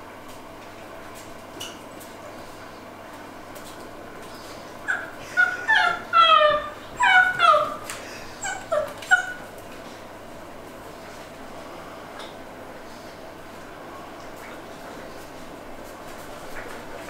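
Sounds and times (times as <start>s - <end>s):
puppy whimpering and yelping: 4.8s - 9.5s.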